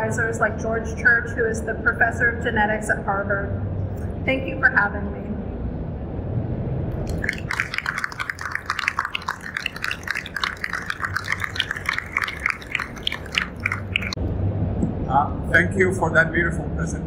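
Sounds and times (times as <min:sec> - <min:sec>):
audience applauding: 0:07.1 - 0:14.2.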